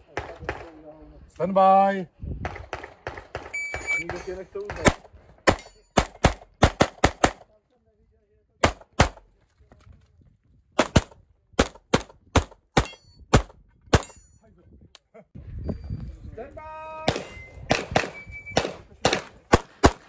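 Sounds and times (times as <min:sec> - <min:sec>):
pistol shots: 0:02.4 - 0:07.5, 0:08.6 - 0:09.2, 0:10.8 - 0:14.2, 0:17.1 - 0:20.0.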